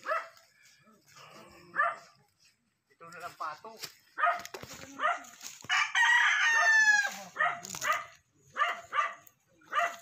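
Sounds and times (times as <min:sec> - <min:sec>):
dog barking: 0:00.0 - 0:00.4, 0:01.7 - 0:02.2, 0:04.1 - 0:05.4, 0:07.3 - 0:10.0
rooster crowing: 0:05.6 - 0:07.3.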